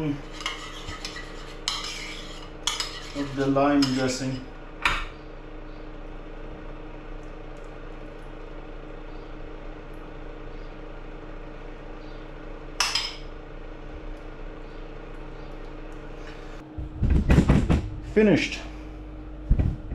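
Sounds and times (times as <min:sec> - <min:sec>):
steady low hum: 0:00.0 - 0:19.9
spoon scraping and clinking bowl: 0:00.3 - 0:04.1.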